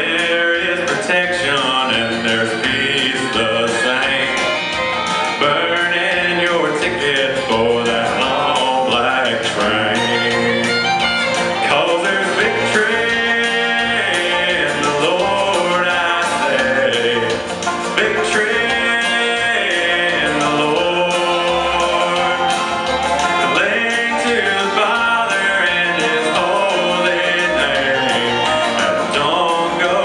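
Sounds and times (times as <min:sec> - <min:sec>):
country instrumental music: 0:00.0 - 0:30.0.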